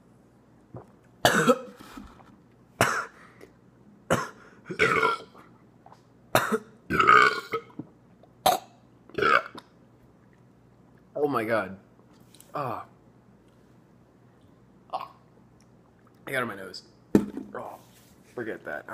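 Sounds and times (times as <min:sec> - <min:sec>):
man burping: 0:04.1 - 0:05.4, 0:06.4 - 0:07.8, 0:14.9 - 0:15.2.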